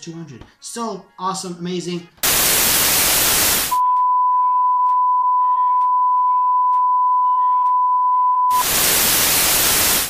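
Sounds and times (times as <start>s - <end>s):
tv static: 2.2s - 3.8s, 8.5s - 10.0s
test-tone beep: 3.7s - 8.7s.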